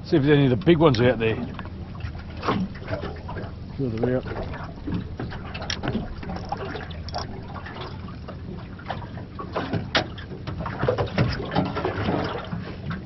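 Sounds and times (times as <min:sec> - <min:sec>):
water lapping against boat: 0:00.0 - 0:13.0
sharp clicks and knocks: 0:03.9 - 0:07.4.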